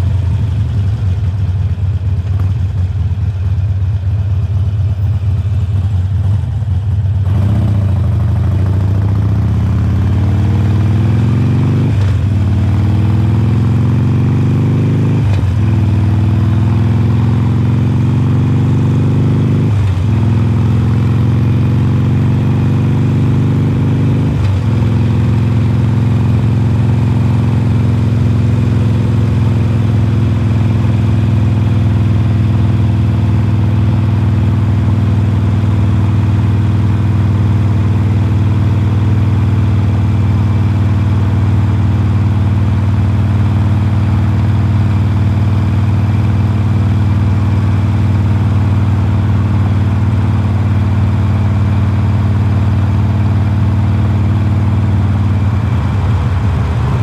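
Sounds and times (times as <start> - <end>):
motorcycle engine accelerating: 0.0 - 57.0.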